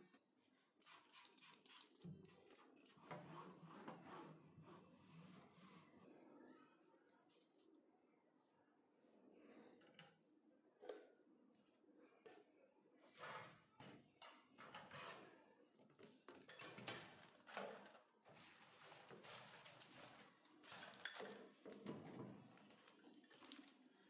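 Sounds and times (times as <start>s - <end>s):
kitchenware clinking and rustling: 16.0s - 23.8s.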